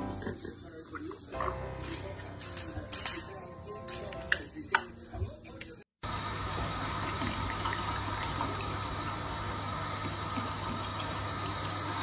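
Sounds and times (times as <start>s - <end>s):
running water rushing: 6.0s - 12.0s.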